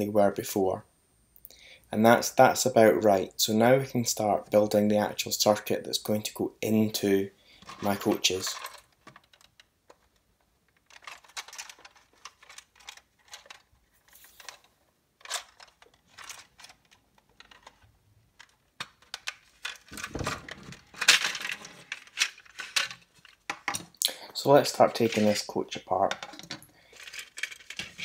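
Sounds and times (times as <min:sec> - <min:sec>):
plastic clatter: 0:07.6 - 0:24.0, 0:24.9 - 0:28.0.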